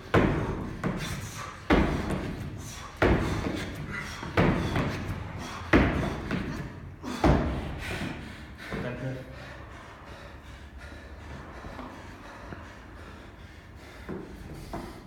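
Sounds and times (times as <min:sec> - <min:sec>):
feet thudding on wooden box: 0:00.0 - 0:08.2.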